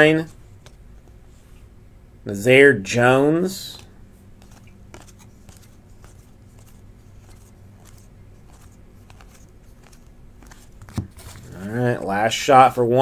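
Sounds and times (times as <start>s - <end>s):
cards clicking and rustling: 0.2s - 1.2s, 3.8s - 12.1s.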